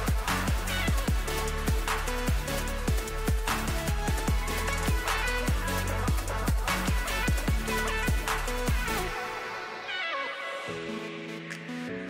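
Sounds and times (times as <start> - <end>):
deep kick drum: 0.0 - 9.0.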